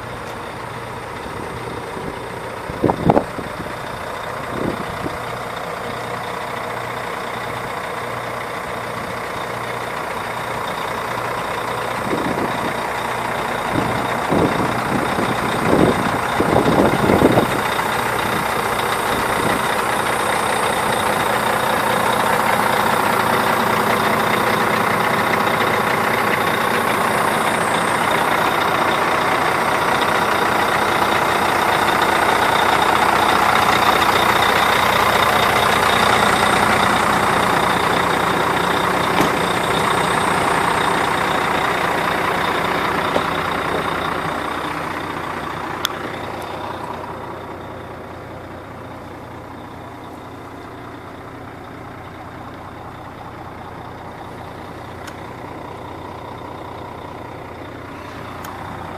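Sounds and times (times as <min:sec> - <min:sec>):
diesel truck engine idling: 0:00.0 - 0:58.9.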